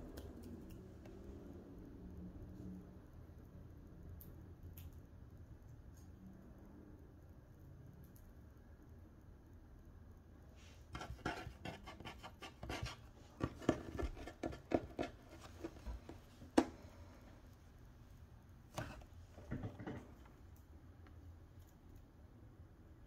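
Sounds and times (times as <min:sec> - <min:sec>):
small scratching noises: 0:10.6 - 0:16.6, 0:18.7 - 0:20.3.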